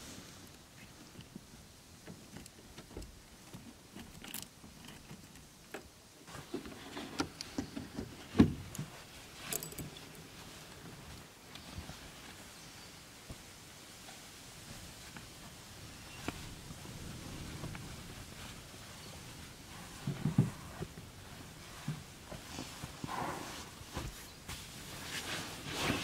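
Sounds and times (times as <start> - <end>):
rustling and clicks of handling: 0.5 - 12.5.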